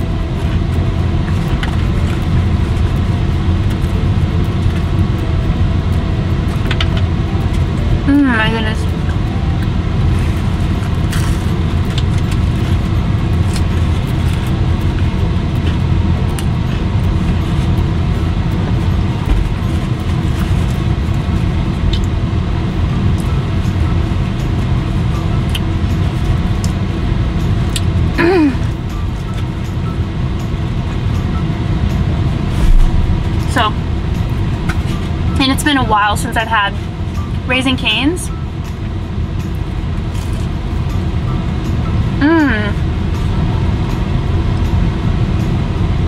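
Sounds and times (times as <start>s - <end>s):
car cabin hum: 0.0s - 45.8s
person humming: 28.2s - 28.7s, 42.2s - 42.8s.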